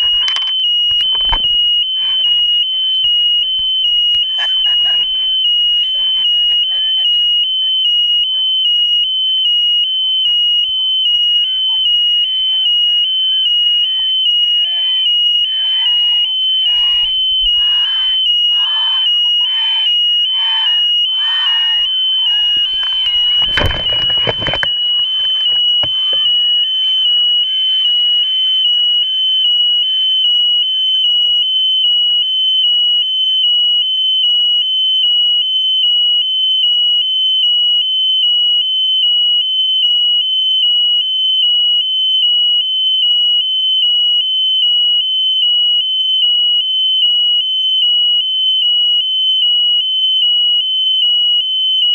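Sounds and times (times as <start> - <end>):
electronic buzzer tone: 0.0 - 31.4.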